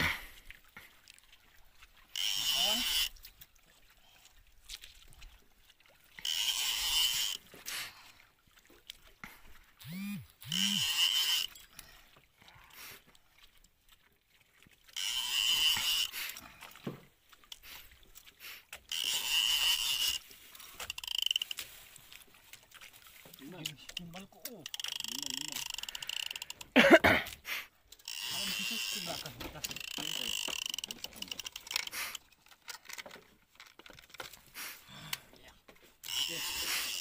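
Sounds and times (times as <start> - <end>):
low grunts: 0.0 - 0.4, 26.7 - 27.4
fishing reel whirring: 2.0 - 3.2, 6.2 - 7.6, 9.8 - 12.0, 14.9 - 16.4, 18.8 - 21.8, 23.2 - 26.7, 28.0 - 32.2, 36.0 - 37.0.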